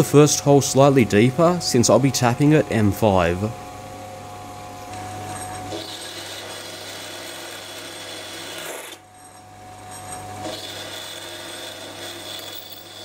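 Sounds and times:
lathe motor hum: 5.6s - 9.0s, 10.4s - 13.0s
boring bar cutting metal: 5.7s - 9.0s, 10.4s - 13.0s.

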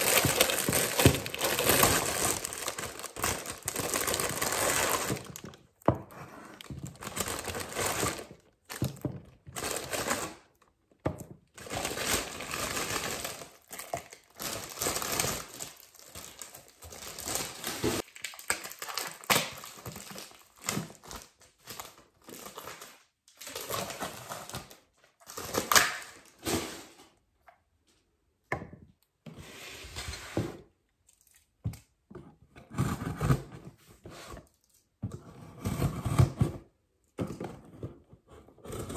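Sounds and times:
plastic bags crinkling: 0.0s - 5.7s, 6.6s - 10.4s, 11.6s - 26.4s.

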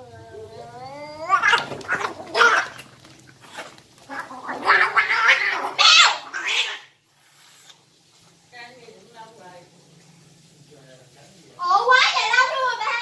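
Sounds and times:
cats fighting with harsh cries: 0.0s - 7.8s.

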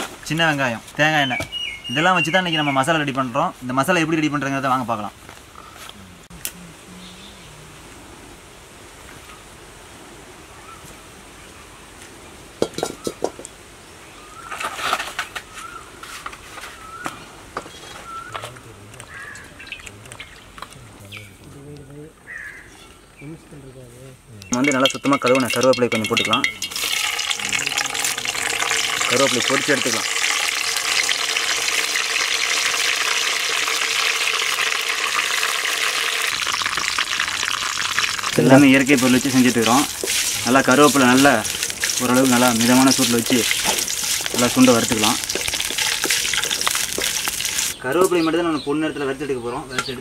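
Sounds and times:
small bird chirping: 1.2s - 2.9s, 16.7s - 21.5s
steel bowl clanking on stones: 12.6s - 13.4s, 24.5s - 47.8s
leaves sizzling in hot oil: 24.5s - 48.1s.

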